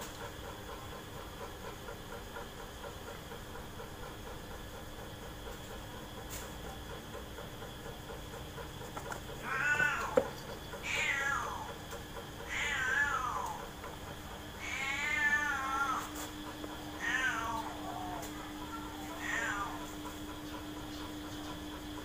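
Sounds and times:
cat meowing: 9.4s - 10.2s, 10.8s - 11.7s, 12.5s - 13.6s, 14.6s - 16.1s, 17.0s - 19.9s.

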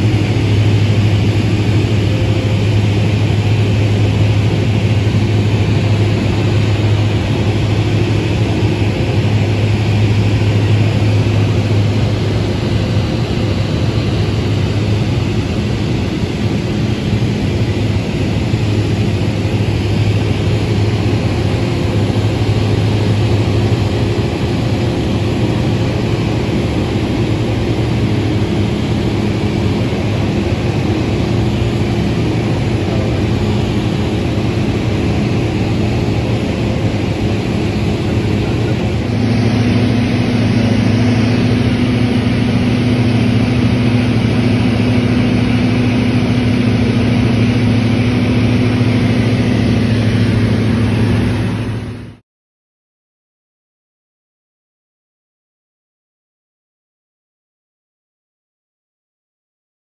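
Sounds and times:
airflow noise: 0.0s - 52.2s
propeller aircraft engine droning: 0.0s - 52.2s.

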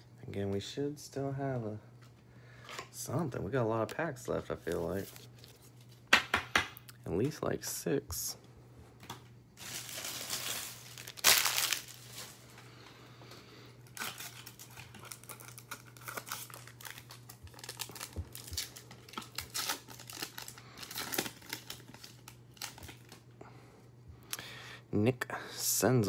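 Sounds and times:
foil pack tearing open: 9.6s - 12.4s, 13.8s - 23.2s
foil wrapper crinkling: 9.6s - 12.7s, 13.8s - 23.2s.

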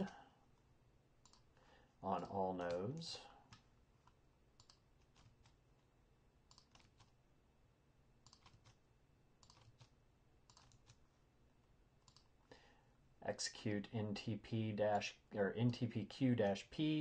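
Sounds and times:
keyboard typing: 1.2s - 1.5s, 2.2s - 5.6s, 6.5s - 7.2s, 8.2s - 8.8s, 9.4s - 11.0s, 12.0s - 12.3s.

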